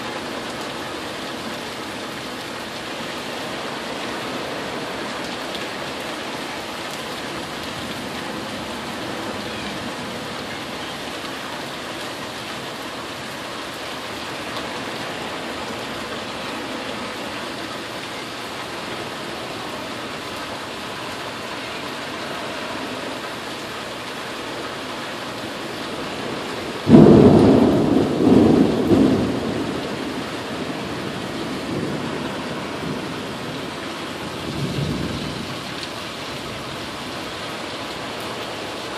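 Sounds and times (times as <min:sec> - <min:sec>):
rain hissing: 0:00.0 - 0:38.9
thunder clap rumbling: 0:26.6 - 0:33.7.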